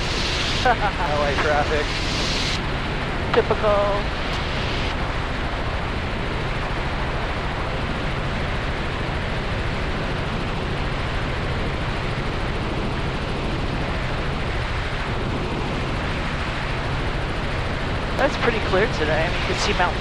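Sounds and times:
rushing air: 0.0 - 5.8
helicopter engine and rotors drone: 0.0 - 20.0.

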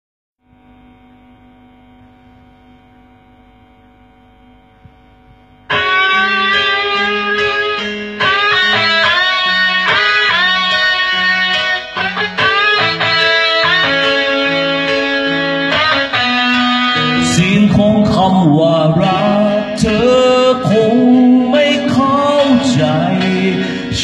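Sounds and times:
pulsing bass line: 0.4 - 24.0
electric guitar lead bending notes: 0.5 - 24.0
rock band playing: 5.7 - 24.0.

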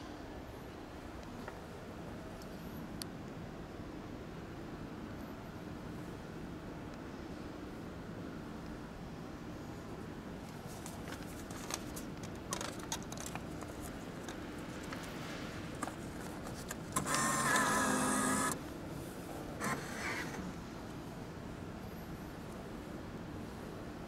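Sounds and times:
bill acceptor motor whirring: 16.8 - 18.6, 19.6 - 20.5.

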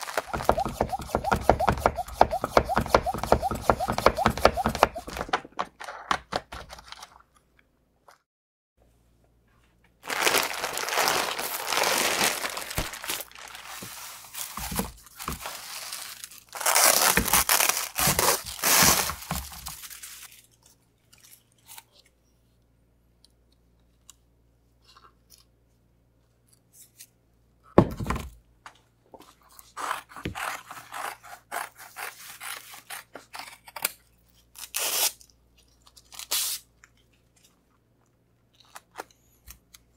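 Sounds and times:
plastic film crinkling and tearing: 0.0 - 1.2, 10.0 - 21.8.

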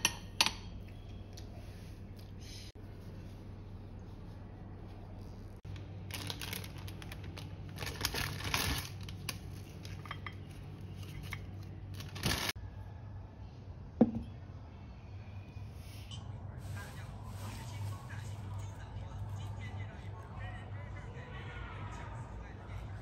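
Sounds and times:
paper cake liners rustling: 2.8 - 12.6.

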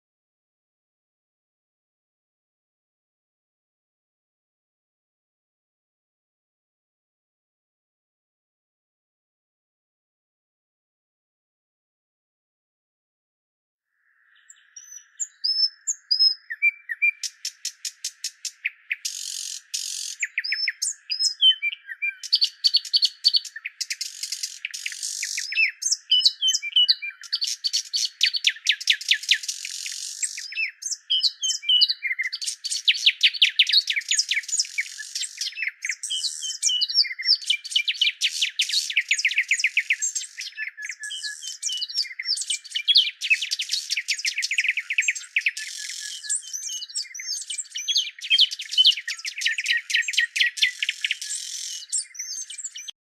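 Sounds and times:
birds chirping and trilling: 13.9 - 53.0.

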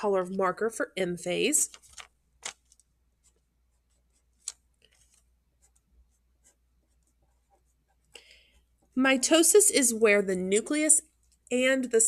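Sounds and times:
marker scratching on paper: 3.2 - 9.0.

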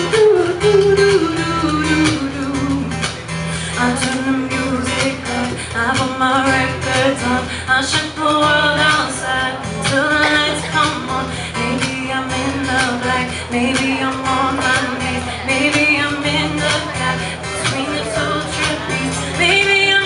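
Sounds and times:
acoustic guitar: 0.0 - 20.0
woman singing: 0.0 - 20.0.

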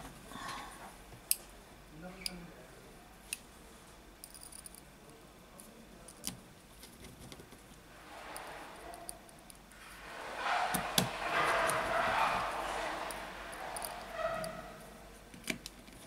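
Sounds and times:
soft rushing noise: 7.8 - 15.3.

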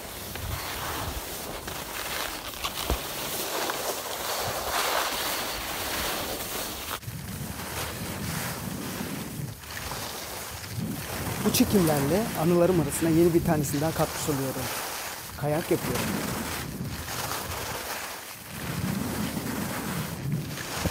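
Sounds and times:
skis scraping over icy snow: 0.0 - 20.9
wind buffeting microphone: 6.9 - 20.9.

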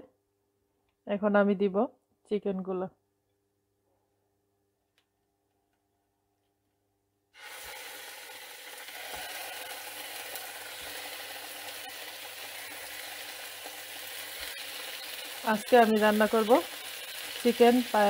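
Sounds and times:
chicken sizzling in oil: 7.4 - 18.0.

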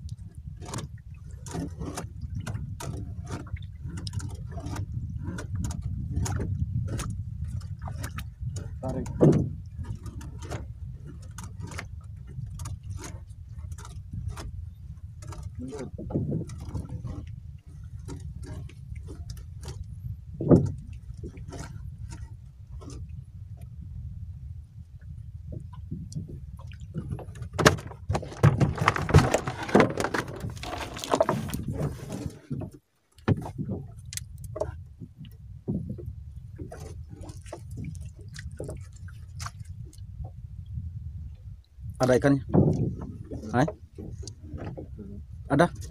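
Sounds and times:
line hauling clicks and knocks: 0.6 - 14.6, 26.9 - 39.6
steady low rumble: 2.1 - 29.1, 33.4 - 45.9
gear knocking and clattering: 27.4 - 32.4.

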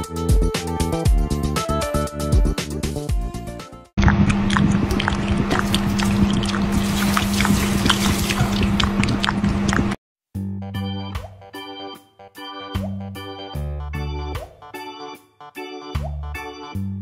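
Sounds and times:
water splashing and dripping: 4.0 - 10.0
organ music: 10.8 - 17.0.

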